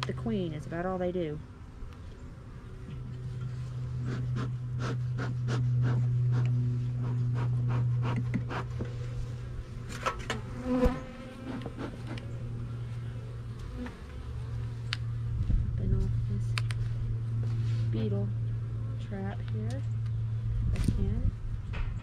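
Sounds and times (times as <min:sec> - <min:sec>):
honeybees buzzing: 0:00.8 - 0:15.3.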